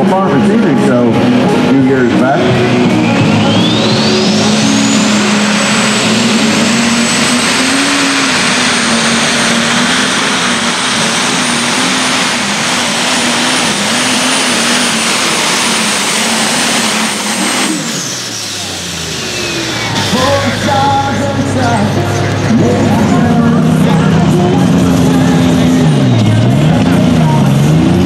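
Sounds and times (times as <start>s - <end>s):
diesel engine at full power: 0.0s - 28.0s
high turbo whine: 0.0s - 28.0s.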